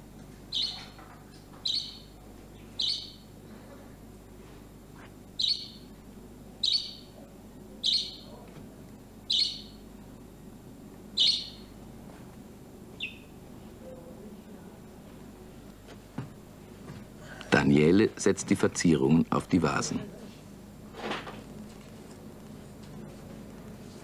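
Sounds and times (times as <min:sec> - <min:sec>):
low steady hum: 0:00.0 - 0:24.0
small bird chirping: 0:00.5 - 0:01.0, 0:01.6 - 0:03.3, 0:05.4 - 0:05.9, 0:06.6 - 0:07.2, 0:07.8 - 0:08.4, 0:09.3 - 0:09.8, 0:11.2 - 0:11.7, 0:13.0 - 0:13.4.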